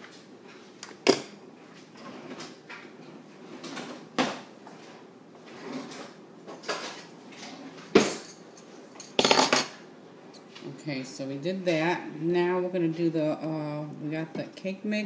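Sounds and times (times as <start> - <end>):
dishes and utensils clinking: 7.9 - 9.8.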